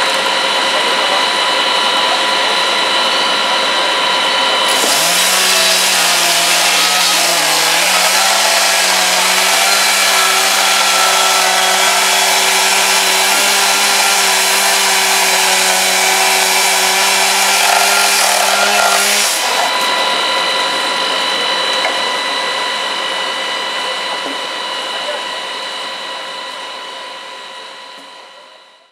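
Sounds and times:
power saw engine at full throttle: 0.0 - 28.5
saw grinding through metal door: 4.6 - 21.8.

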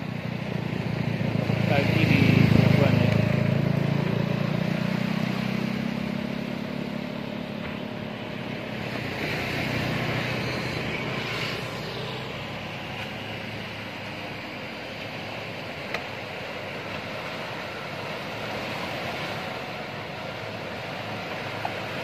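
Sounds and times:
boat motor running: 0.0 - 22.0
breaking surf: 4.9 - 22.0.

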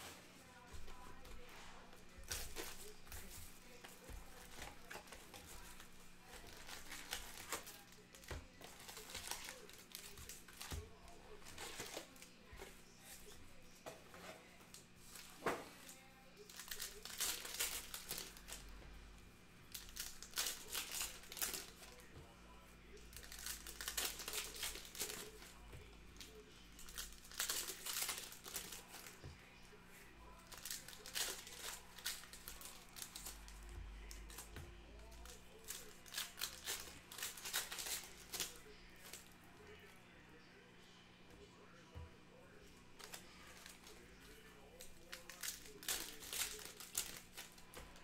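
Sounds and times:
foil wrappers tearing and crinkling: 0.7 - 13.4, 16.4 - 18.7, 19.7 - 22.1, 22.9 - 25.6, 26.2 - 29.2, 30.3 - 39.4, 43.0 - 48.0.

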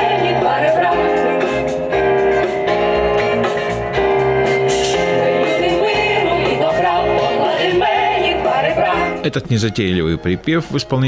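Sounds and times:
group of people singing: 0.0 - 1.7, 4.9 - 9.3
jazz band playing: 0.0 - 11.0.

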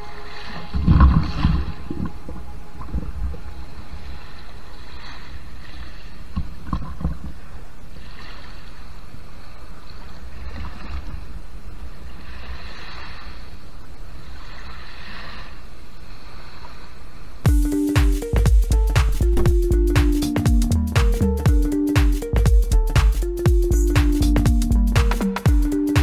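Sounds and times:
small waves washing on sand: 7.3 - 17.4
steady low rumble: 17.5 - 25.9.

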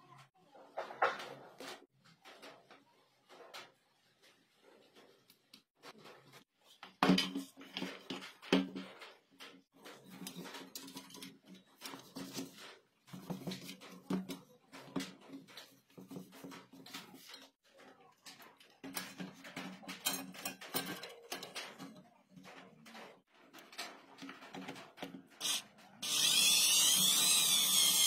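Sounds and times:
clicks and knocks on sheet steel: 12.5 - 25.4.

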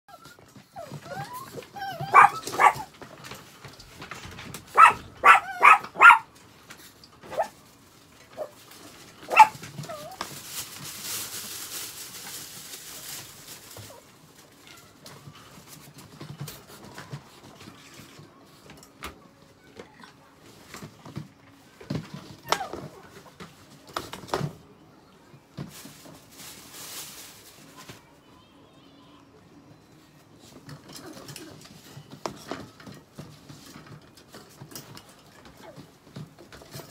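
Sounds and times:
small dogs yapping: 0.1 - 3.0, 4.7 - 6.3, 7.2 - 7.6, 9.2 - 10.2
rustling: 0.1 - 19.0, 25.5 - 28.2.

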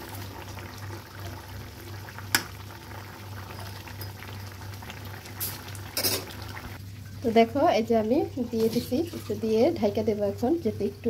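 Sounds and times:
sauce simmering and bubbling: 0.0 - 7.4.

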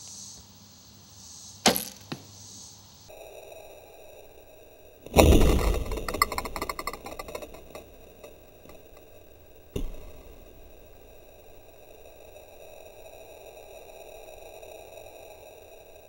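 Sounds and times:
faint steady tones: 0.0 - 16.0
arrow thud into target: 1.6 - 2.2.

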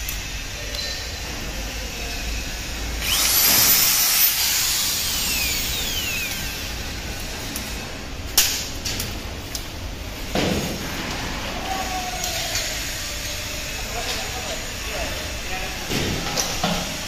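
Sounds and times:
power drill whining: 3.0 - 7.0.

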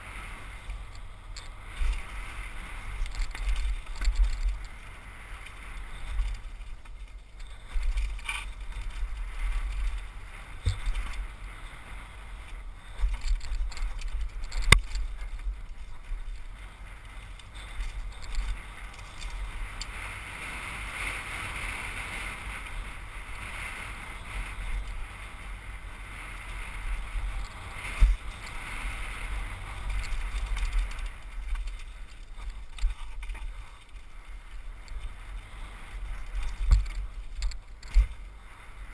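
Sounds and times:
bike rattling over bumps: 0.0 - 38.9
bike tyres rumbling on dirt: 0.0 - 38.9
wind buffeting microphone: 0.0 - 38.9
bike knocking on rocks: 2.8 - 4.8, 5.8 - 11.4, 12.9 - 16.6, 36.1 - 38.2.

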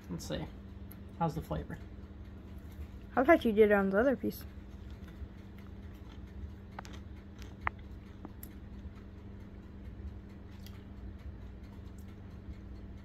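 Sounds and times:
low hum: 0.0 - 13.0
person chewing: 4.8 - 8.6, 10.4 - 10.9.

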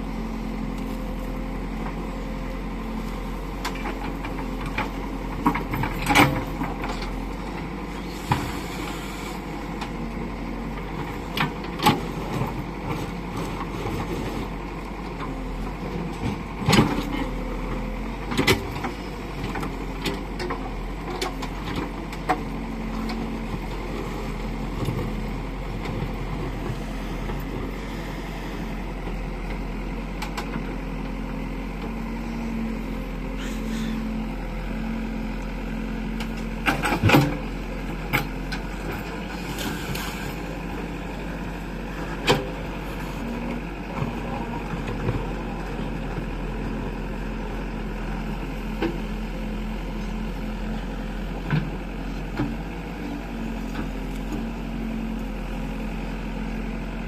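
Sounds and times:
diesel engine working: 0.0 - 57.0
sharp knocks of backhoe digging: 3.6 - 7.2, 8.0 - 9.1, 16.0 - 28.0, 36.2 - 40.3, 42.0 - 42.6.

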